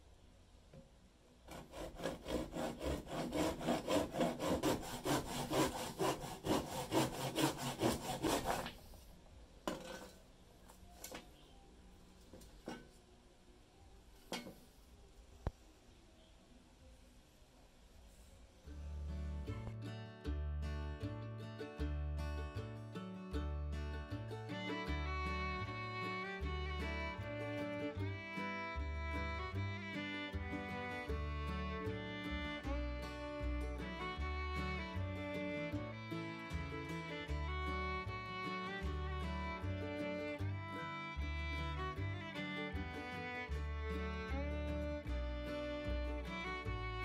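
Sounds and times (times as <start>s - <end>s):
handsaw cutting wood: 1.5s - 8.9s
plucked string notes: 18.7s - 47.0s.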